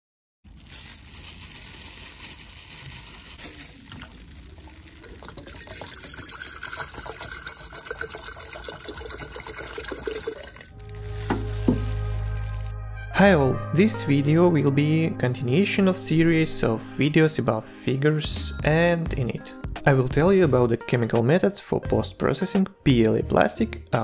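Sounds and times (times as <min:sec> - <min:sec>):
liquid pouring into glass jar: 0:00.5 - 0:12.7.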